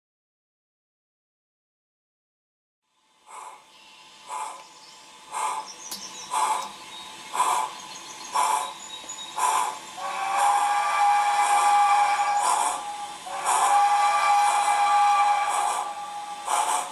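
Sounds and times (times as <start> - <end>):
steam locomotive exhaust chuffs: 3.2 - 16.9
steam whistle steady tone: 5.3 - 16.9.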